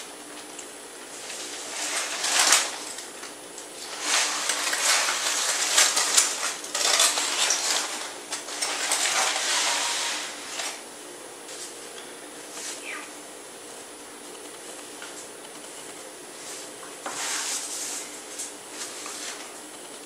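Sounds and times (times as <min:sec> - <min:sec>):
aluminium foil crinkling: 0:00.5 - 0:10.8.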